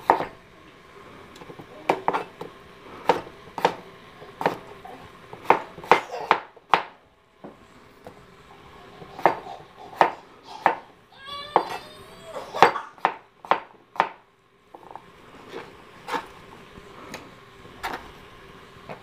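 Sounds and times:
knife chopping on cutting board: 0:00.0 - 0:00.3, 0:01.4 - 0:02.4, 0:03.0 - 0:03.8, 0:04.4 - 0:04.7, 0:05.3 - 0:07.6, 0:09.0 - 0:10.9, 0:12.6 - 0:14.2.

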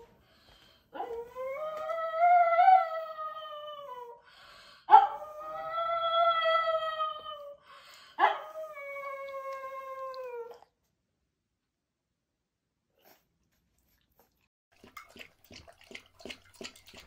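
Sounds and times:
dog howling: 0:01.0 - 0:04.2.

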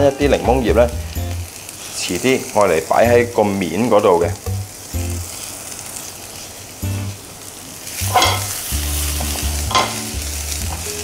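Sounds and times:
aromatics sizzling in hot oil: 0:00.0 - 0:11.0
frying pan scraping sweep: 0:07.9 - 0:10.6.

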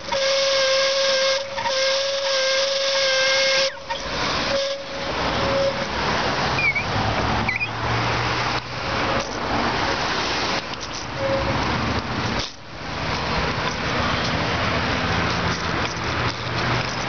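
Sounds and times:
passing car traffic: 0:00.0 - 0:17.0
car engine humming: 0:03.6 - 0:17.0.

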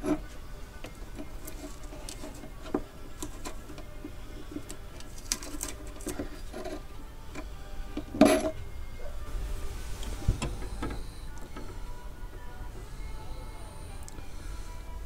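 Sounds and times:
hand tools clicking and scraping metal: 0:00.0 - 0:08.6
metallic clank: 0:08.0 - 0:08.6.

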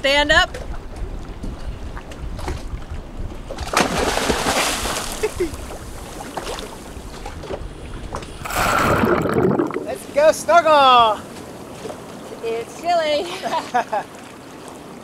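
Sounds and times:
churning water: 0:00.0 - 0:15.0
person splashing into water: 0:03.6 - 0:06.8, 0:08.4 - 0:10.0.

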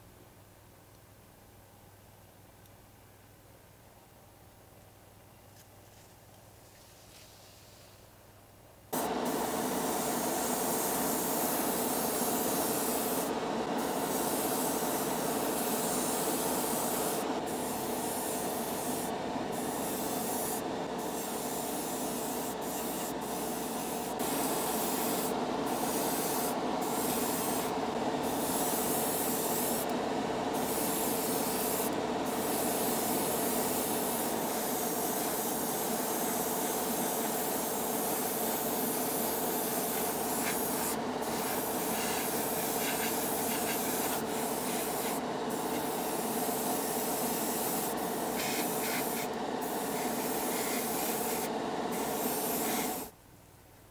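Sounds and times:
airbrush hissing: 0:09.0 - 0:29.9, 0:30.5 - 0:53.1
extractor fan humming: 0:09.0 - 0:53.1.

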